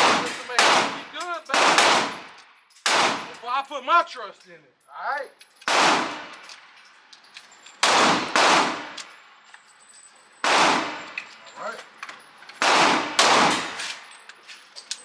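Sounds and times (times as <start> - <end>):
pistol shots echoing: 0.0 - 3.4, 5.7 - 6.4, 7.8 - 9.0, 10.4 - 11.2, 12.6 - 14.0.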